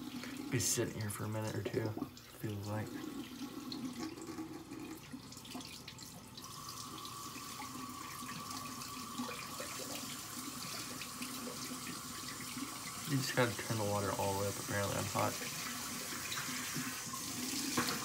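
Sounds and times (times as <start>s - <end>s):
sink tap running: 0.0s - 18.0s.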